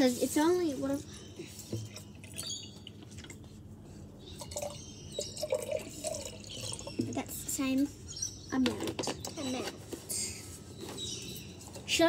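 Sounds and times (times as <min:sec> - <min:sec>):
liquid pouring into a cup: 0:04.4 - 0:07.4.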